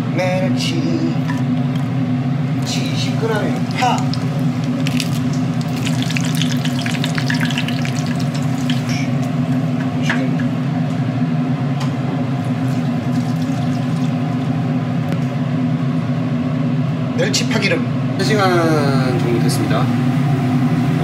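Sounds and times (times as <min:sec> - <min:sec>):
food sizzling in oil: 0:02.6 - 0:09.6, 0:12.4 - 0:14.8.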